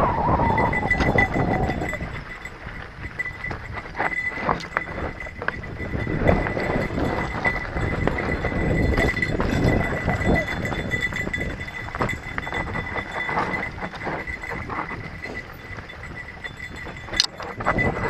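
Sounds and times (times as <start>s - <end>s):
rushing air: 0.0s - 2.0s
bike tyres rumbling on dirt: 0.0s - 18.0s
bike knocking and rattling: 0.9s - 18.0s.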